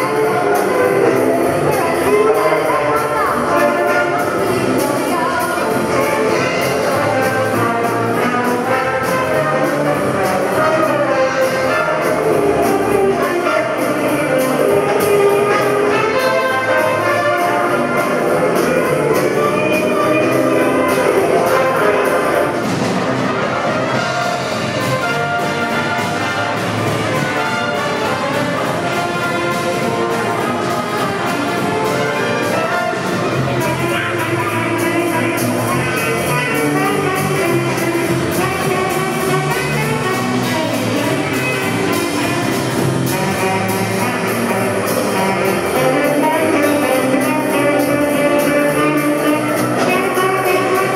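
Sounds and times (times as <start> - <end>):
big band jazz playing: 0.0 - 50.9.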